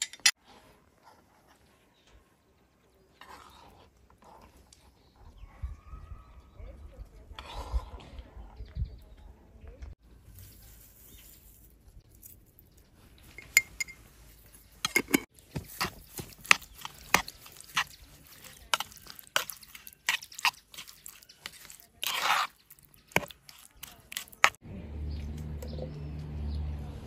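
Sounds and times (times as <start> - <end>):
wet squelching: 15.7 - 24.6.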